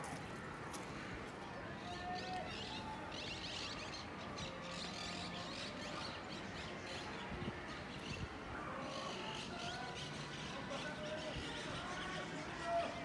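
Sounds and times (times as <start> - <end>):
faint distant voices: 0.0 - 13.0.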